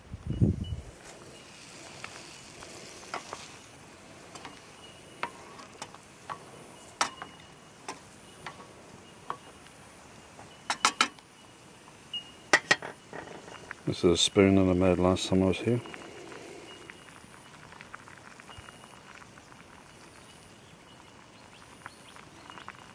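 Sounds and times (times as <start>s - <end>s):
wooden spoon knocking metal pot: 10.7s - 11.2s, 12.5s - 13.4s.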